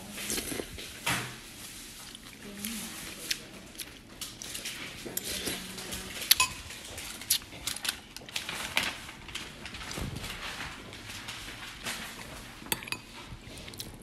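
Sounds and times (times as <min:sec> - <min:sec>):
utensils clinking on dishes: 0:04.5 - 0:08.0, 0:11.9 - 0:13.3.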